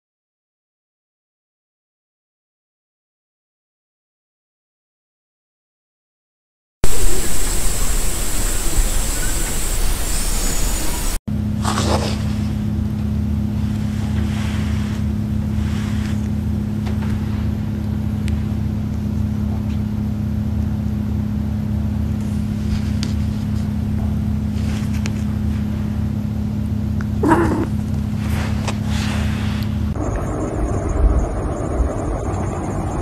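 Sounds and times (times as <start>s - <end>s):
steady low hum: 6.8s - 33.0s.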